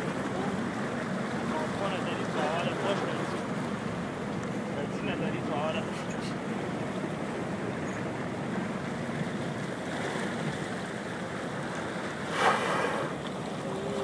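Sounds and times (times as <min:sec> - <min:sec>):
water lapping: 0:00.0 - 0:14.0
whale blowing through blowhole: 0:12.2 - 0:13.3.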